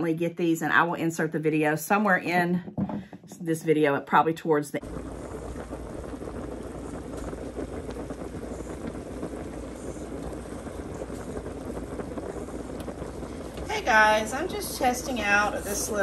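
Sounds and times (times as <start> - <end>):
water boiling in pot: 3.6 - 16.0
low hum: 4.8 - 16.0.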